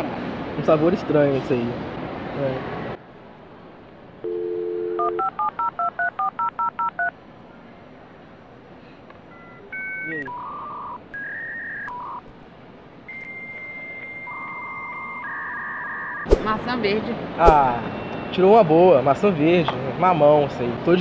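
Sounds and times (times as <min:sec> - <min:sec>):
steady high modem tone: 0:04.2 - 0:07.1, 0:09.3 - 0:12.3, 0:13.0 - 0:16.3
keypad dialing beeps: 0:04.3 - 0:07.1, 0:09.3 - 0:12.2, 0:13.1 - 0:16.3.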